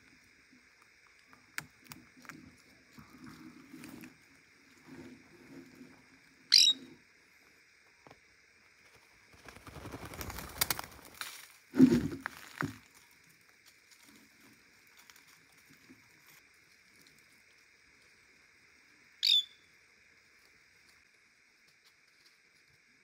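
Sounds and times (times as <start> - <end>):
insects buzzing: 0.0 - 23.0
parakeet squawking: 6.5 - 6.8, 19.2 - 19.6
wings flapping: 8.9 - 11.2.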